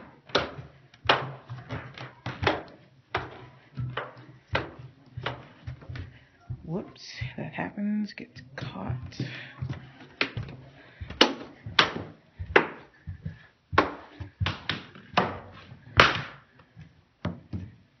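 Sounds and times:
cane tapping the floor: 0:00.0 - 0:06.7, 0:09.0 - 0:16.5.

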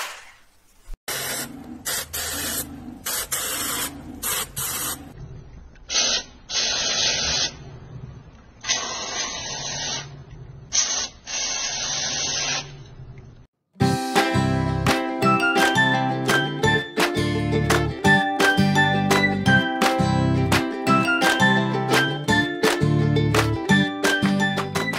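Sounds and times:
spray can hissing: 0:01.1 - 0:05.0, 0:05.9 - 0:07.5, 0:08.6 - 0:10.0, 0:10.8 - 0:12.6.

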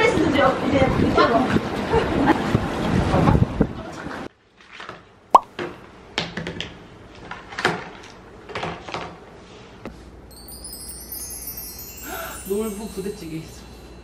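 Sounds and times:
high shimmering chime: 0:10.3 - 0:14.0.

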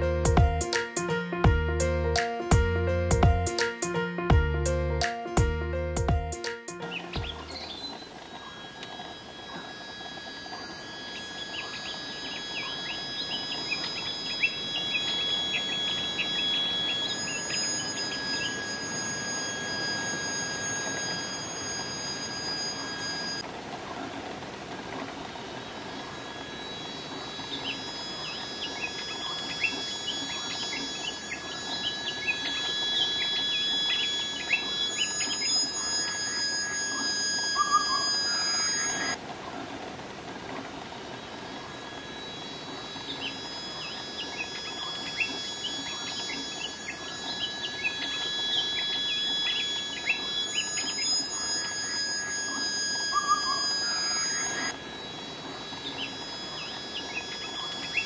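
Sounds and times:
high whining tones: 0:06.8 - 0:39.2, 0:40.3 - 0:58.0
bird chirping: 0:06.8 - 0:39.6, 0:40.4 - 0:58.0
stream water running: 0:06.8 - 0:58.0.

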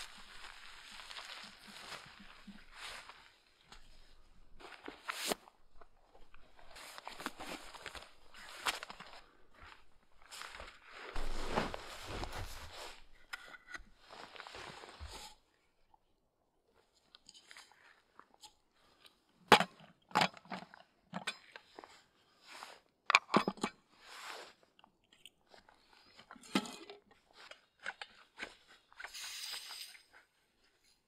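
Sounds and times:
rustling scrape: 0:10.3 - 0:13.1, 0:14.0 - 0:15.4, 0:29.1 - 0:30.1.

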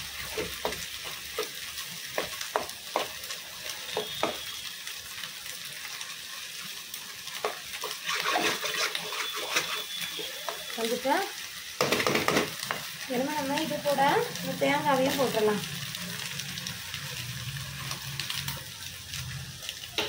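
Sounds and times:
egg sizzling in a pan: 0:00.0 - 0:20.0
steel spoon scraping a pan: 0:07.8 - 0:10.7.

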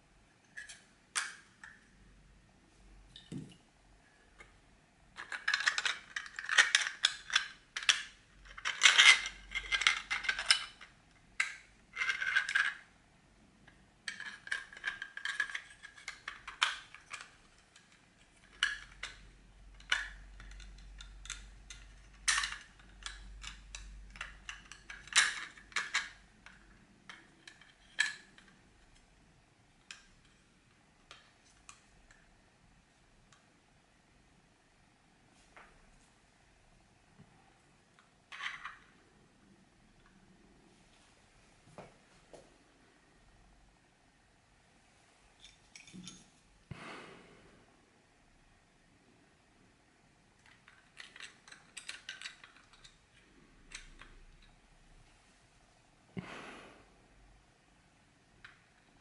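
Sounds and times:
plastic toy parts clicking and rattling: 0:05.1 - 0:13.0, 0:13.6 - 0:29.1, 0:29.8 - 0:32.3, 0:38.0 - 0:38.9, 0:50.4 - 0:54.6.

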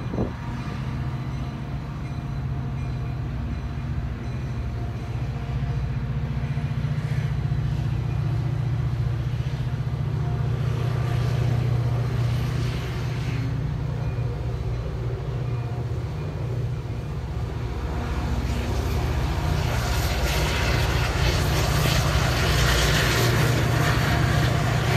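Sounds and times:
commuter train passing: 0:00.0 - 0:24.9.

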